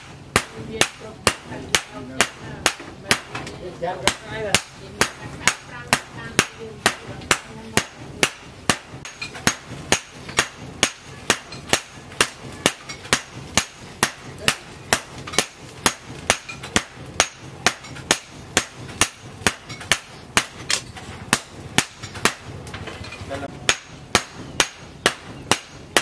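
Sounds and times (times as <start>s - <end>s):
hammer striking steel on anvil: 0.0s - 26.0s.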